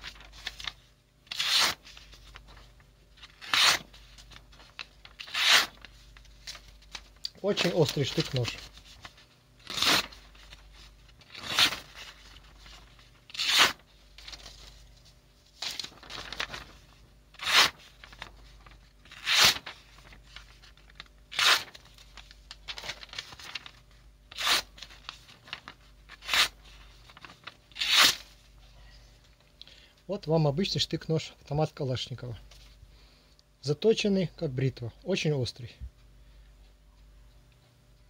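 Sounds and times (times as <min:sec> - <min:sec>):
blade slicing paper: 0:01.3 - 0:02.0, 0:03.2 - 0:03.9, 0:05.1 - 0:06.6, 0:09.6 - 0:10.6, 0:11.2 - 0:14.5, 0:17.4 - 0:17.9, 0:19.0 - 0:20.1, 0:21.3 - 0:22.0, 0:24.3 - 0:25.0, 0:26.1 - 0:26.6, 0:27.7 - 0:28.3.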